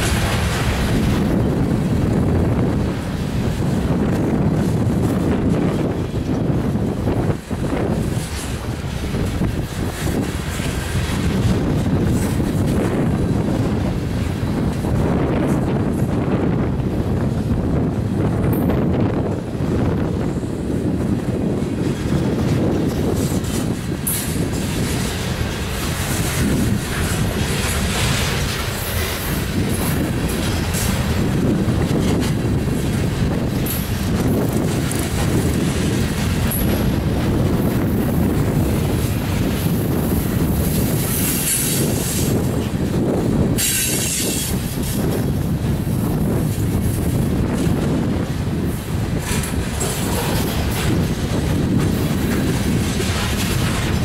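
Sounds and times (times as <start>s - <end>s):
train wheels rumbling on rails: 0.0s - 54.0s
wheel clicks on rail joints: 21.5s - 54.0s.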